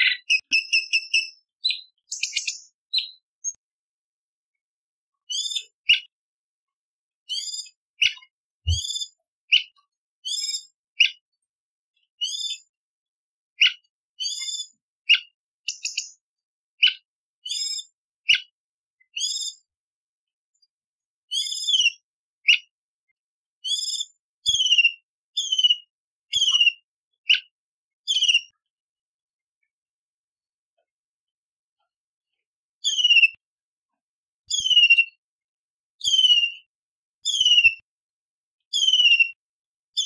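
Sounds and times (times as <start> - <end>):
bird singing whistled phrases: 0.0 - 3.6, 7.3 - 9.6, 21.3 - 22.6, 23.6 - 27.4, 28.1 - 28.5, 32.8 - 33.4, 34.5 - 35.2, 36.0 - 37.9, 38.7 - 39.4.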